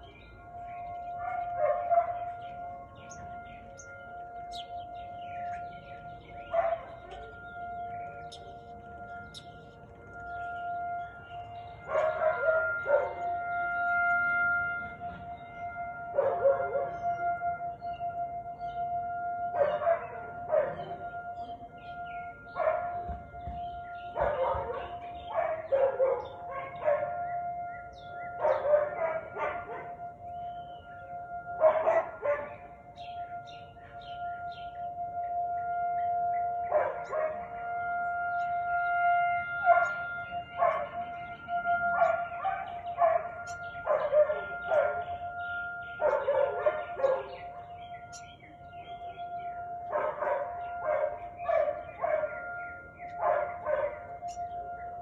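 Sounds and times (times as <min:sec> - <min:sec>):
dog barking: 0:01.2 - 0:02.2, 0:06.5 - 0:07.3, 0:11.9 - 0:13.2, 0:19.6 - 0:21.0, 0:22.6 - 0:23.0, 0:24.2 - 0:27.2, 0:28.4 - 0:30.0, 0:31.6 - 0:32.6, 0:36.7 - 0:37.5, 0:40.6 - 0:41.0, 0:42.0 - 0:45.0, 0:46.0 - 0:47.4, 0:49.9 - 0:52.4, 0:53.2 - 0:54.0.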